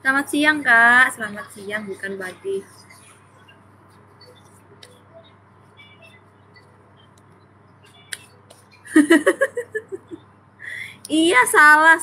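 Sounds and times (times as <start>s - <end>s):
woman's voice: 0.0s - 3.2s, 8.9s - 12.0s.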